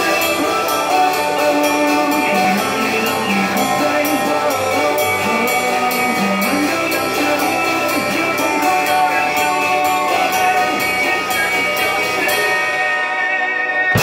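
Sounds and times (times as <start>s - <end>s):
drum kit playing: 0.0s - 13.2s
pop-rock backing track: 0.0s - 14.0s.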